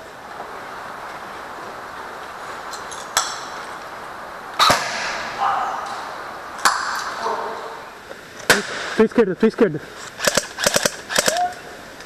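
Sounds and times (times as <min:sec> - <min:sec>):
airsoft gun shots: 0:04.6 - 0:05.3, 0:10.2 - 0:11.5.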